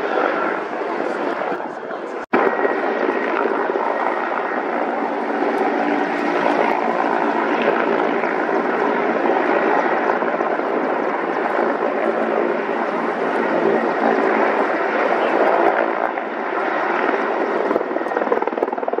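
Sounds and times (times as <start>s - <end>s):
helicopter engine and rotor noise: 0.0s - 19.0s.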